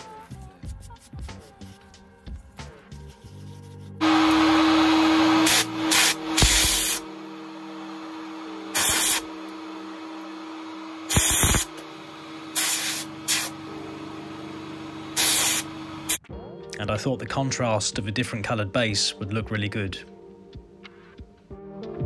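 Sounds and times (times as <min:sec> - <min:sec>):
spray gun hissing: 0:05.2 - 0:07.1, 0:08.7 - 0:09.3, 0:11.0 - 0:11.8, 0:12.5 - 0:13.6, 0:15.1 - 0:16.2.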